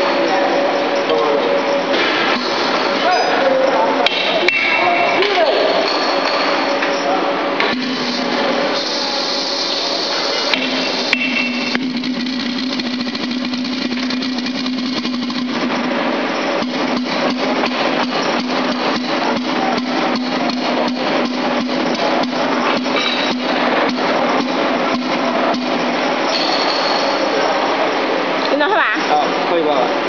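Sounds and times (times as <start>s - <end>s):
low hum: 0.0s - 28.5s
hammer tapping steel valve: 4.0s - 5.4s, 10.5s - 11.8s
steady hissing: 7.7s - 11.1s.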